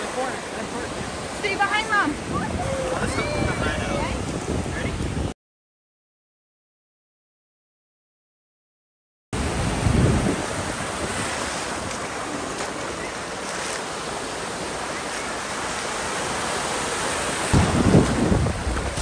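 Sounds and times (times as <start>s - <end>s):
ocean surf breaking: 0.0s - 5.3s, 9.4s - 19.0s
wind buffeting microphone: 1.9s - 5.3s, 9.4s - 12.4s, 17.4s - 19.0s.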